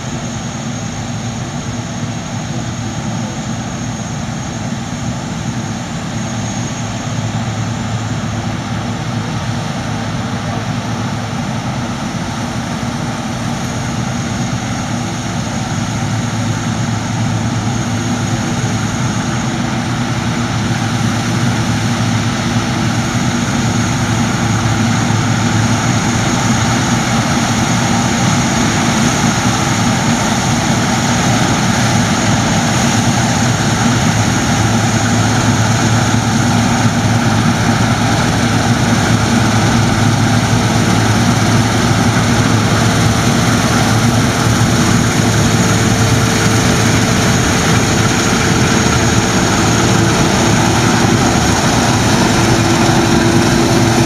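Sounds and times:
combine harvester drone: 0.0 - 54.0
thin high whine: 13.6 - 54.0.

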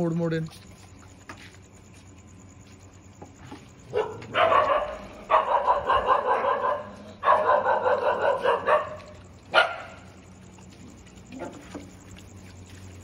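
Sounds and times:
dogs barking rapidly: 3.9 - 10.2.

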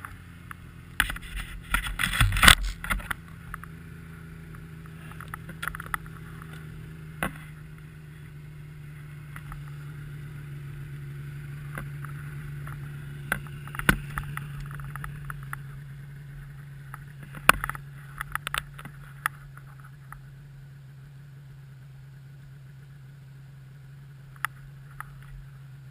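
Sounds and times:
snowmobile engine idling: 0.0 - 25.9.

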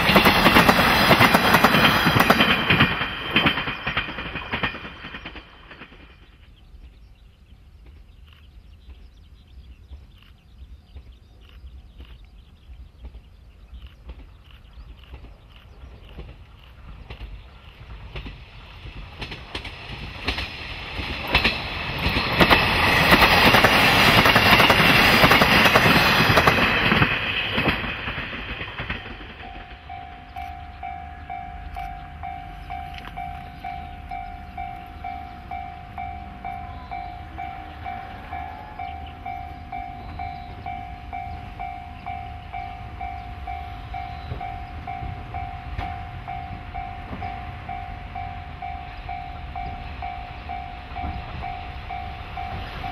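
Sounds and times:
diesel railcar passing: 0.0 - 52.9
wheels clicking over rail joints: 0.0 - 52.9
level-crossing warning bell: 22.0 - 52.9.

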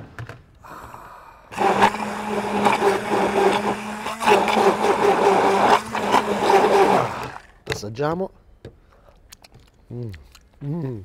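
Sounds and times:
stick blender whirring: 1.5 - 7.6.

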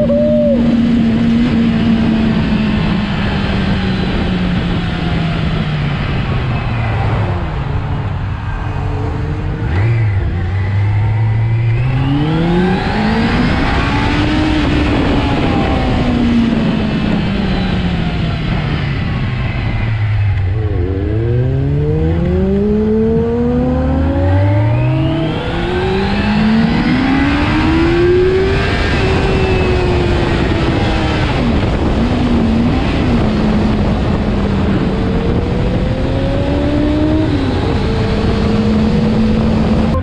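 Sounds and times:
motorcycle engine accelerating: 0.0 - 40.0
wind noise: 0.0 - 40.0.

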